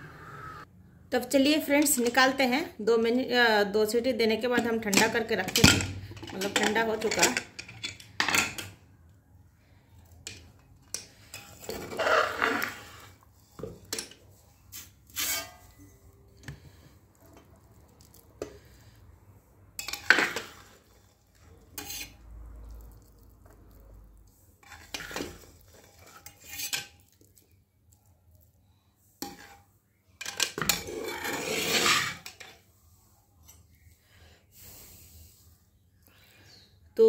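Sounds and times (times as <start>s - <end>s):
metal spatula scraping pot: 10.2s - 18.8s, 19.8s - 23.0s, 24.6s - 27.2s, 29.2s - 32.6s.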